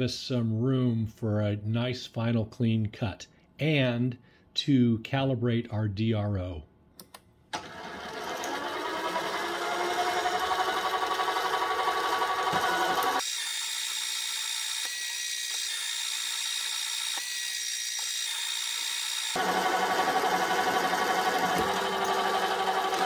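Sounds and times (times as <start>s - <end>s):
lathe motor whine: 7.6s - 23.0s.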